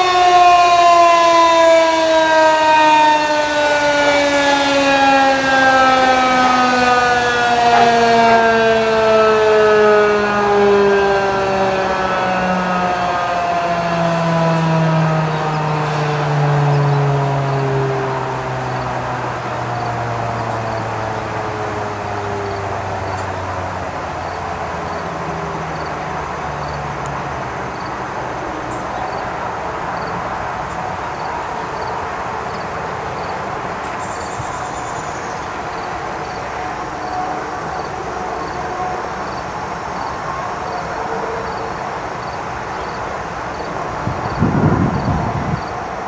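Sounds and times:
warning siren winding down: 0.0s - 46.0s.

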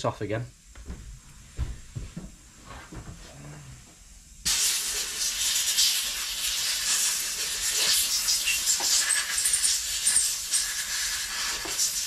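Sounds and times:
compressed air hissing: 4.4s - 12.0s.

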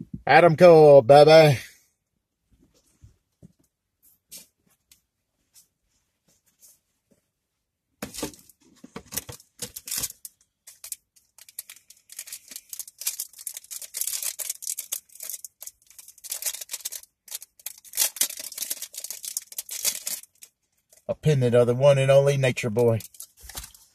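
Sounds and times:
packaging rustling and tearing: 9.0s - 21.0s, 23.0s - 23.9s.

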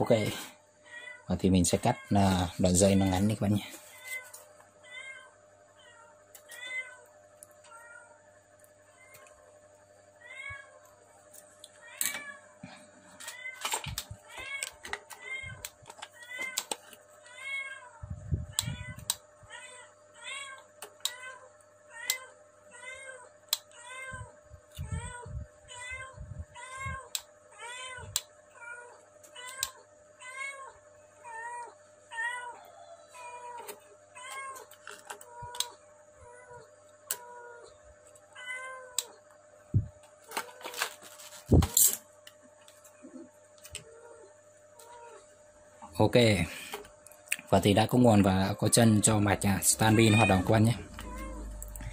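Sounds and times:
cat meowing: 17.3s - 37.7s, 49.7s - 51.9s.

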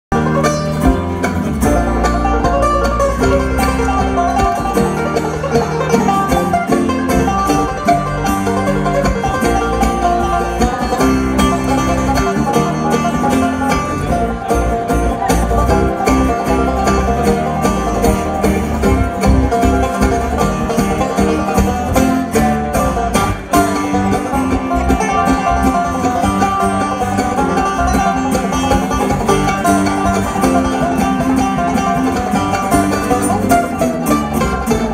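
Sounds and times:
bluegrass band playing: 0.1s - 34.9s.

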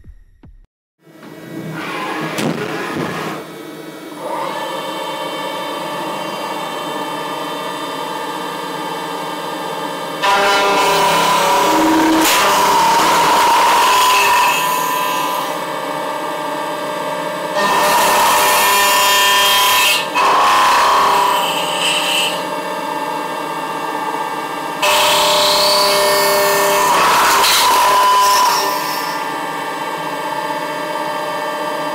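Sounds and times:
milling machine cutting plastic: 10.1s - 15.7s, 17.6s - 30.1s.

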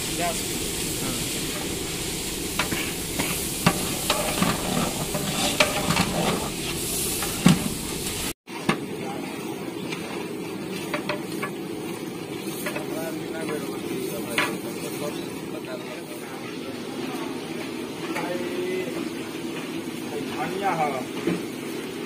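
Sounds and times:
curry sizzling in a pot: 0.0s - 22.0s
ladle scraping and knocking pot: 2.6s - 8.8s, 9.9s - 11.6s.

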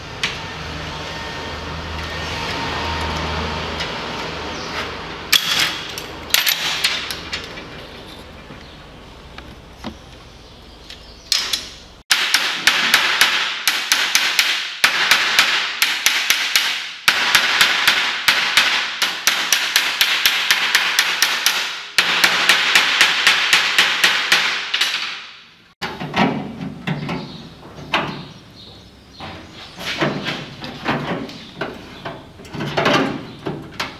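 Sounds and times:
hammer striking steel: 11.3s - 25.5s.

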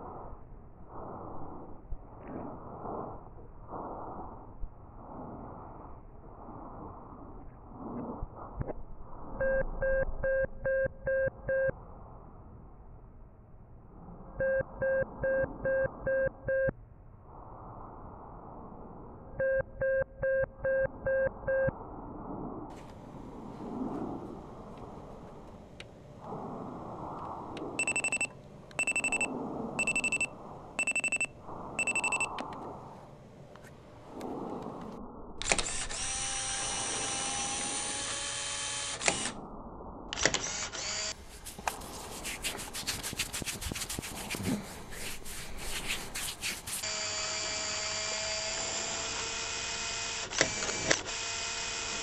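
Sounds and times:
alarm clock beeping: 27.8s - 32.3s.

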